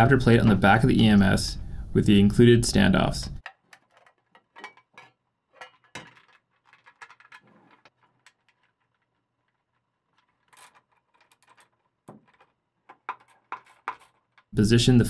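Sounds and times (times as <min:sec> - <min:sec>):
small parts clicking and knocking: 0:03.4 - 0:14.6.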